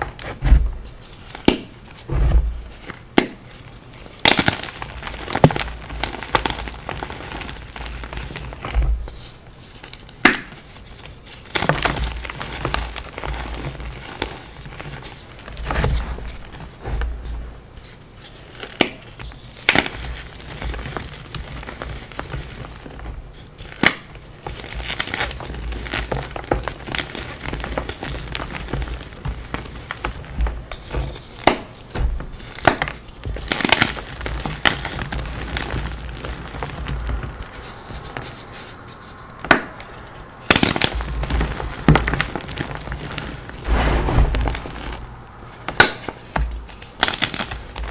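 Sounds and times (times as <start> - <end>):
chalk crunching and crumbling: 0.2 - 47.9.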